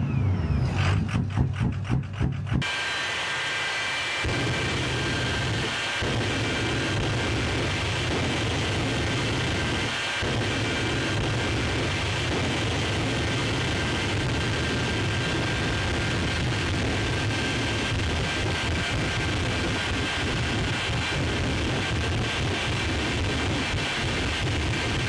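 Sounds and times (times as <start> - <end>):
jet engine roaring: 0.0 - 25.0.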